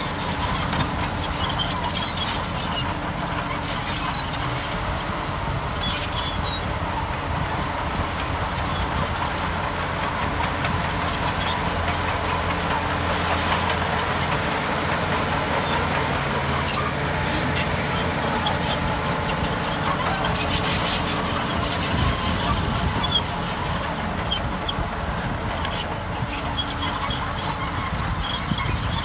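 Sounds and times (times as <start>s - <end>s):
metal squealing and clattering: 0.0s - 4.8s, 5.7s - 29.0s
bulldozer diesel engine: 0.0s - 29.0s.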